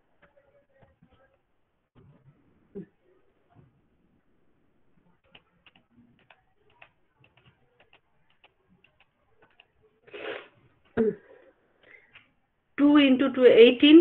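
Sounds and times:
computer mouse clicks: 5.2s - 9.8s.

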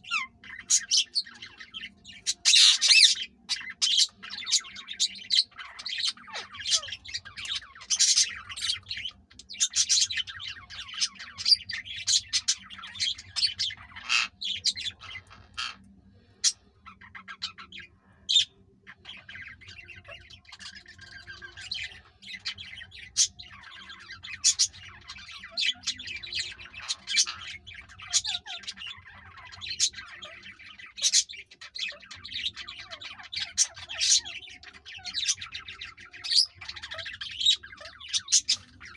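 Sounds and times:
parakeets chirping and squawking: 0.0s - 38.9s.

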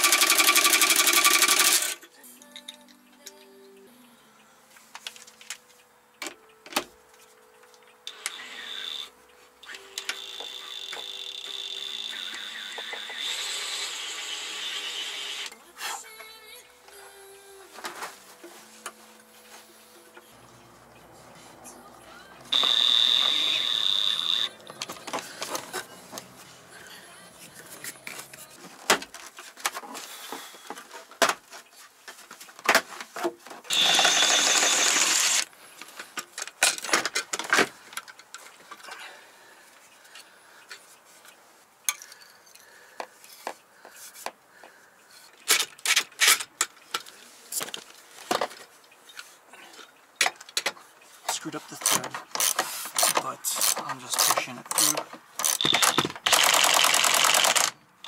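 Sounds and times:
cordless drill whining: 8.1s - 15.6s, 22.5s - 24.6s, 33.7s - 35.5s, 51.8s - 57.7s.

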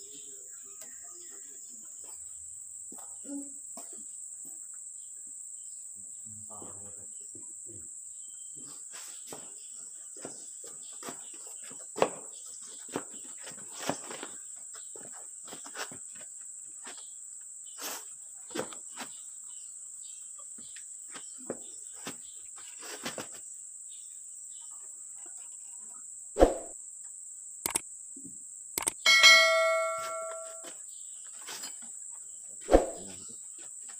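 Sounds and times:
metallic clinks and knocks: 28.8s - 30.7s.

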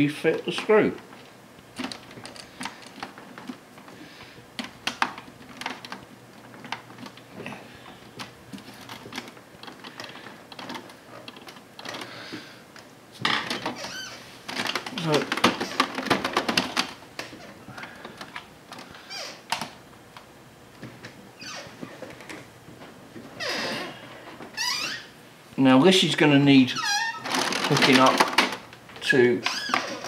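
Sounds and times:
plastic case rustling: 13.2s - 19.8s, 27.2s - 28.7s.

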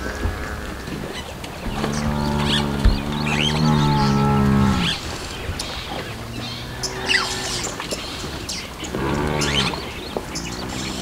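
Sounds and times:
buffalo lowing: 0.0s - 7.8s
birds chirping: 0.0s - 11.0s.

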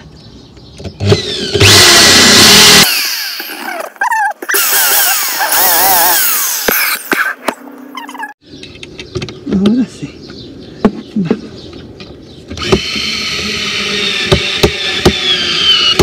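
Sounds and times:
electric drill drilling into wood: 1.0s - 3.6s, 4.5s - 7.0s, 12.6s - 16.0s.

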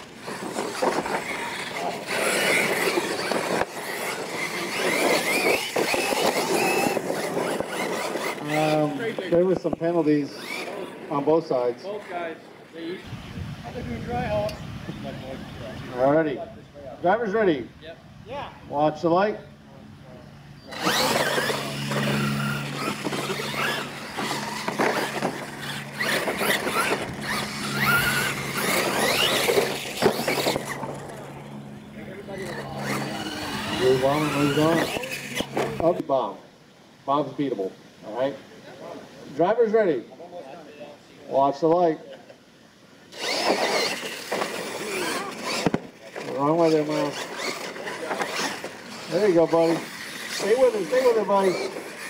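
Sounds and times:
tyres churning through dirt: 0.0s - 12.0s, 20.6s - 36.0s, 43.1s - 52.0s
electric motors whining: 0.0s - 12.1s, 20.0s - 36.0s, 43.1s - 52.0s.

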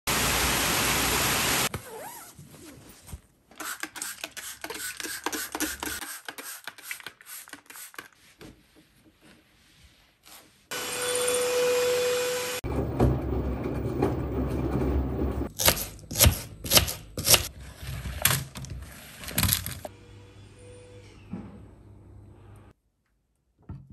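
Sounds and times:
cloth wiping a wooden table: 8.1s - 10.7s
washing machine running: 12.6s - 15.5s.

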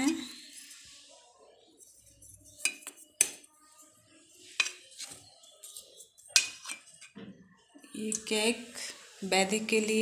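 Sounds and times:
spoon clinking on steel dishes: 2.2s - 3.5s, 4.5s - 5.1s, 5.7s - 7.1s.

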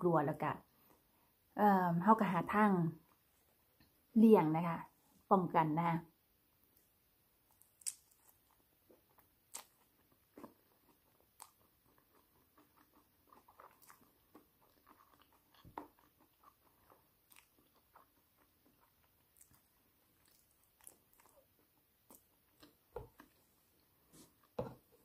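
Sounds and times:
chewing crisp cracker: 7.5s - 23.5s.

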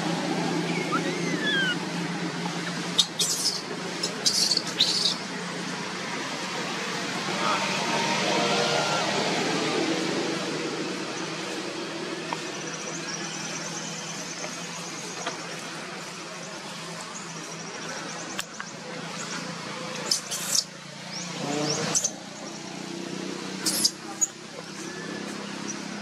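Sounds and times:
faint bird chirping: 0.6s - 1.8s
sharp high squeaks: 0.7s - 1.8s, 23.6s - 24.4s.

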